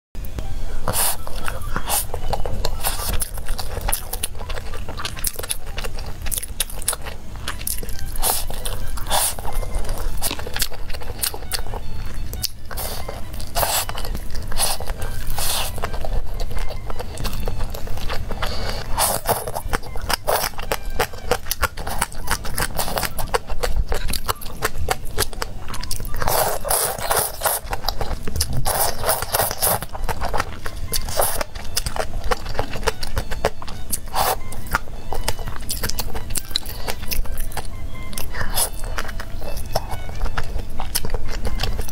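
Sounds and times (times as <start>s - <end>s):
wet chewing and biting: 0.8s - 41.9s
slurping noodles: 8.0s - 10.6s, 12.7s - 16.3s, 18.3s - 19.6s, 26.1s - 31.5s, 34.0s - 34.6s.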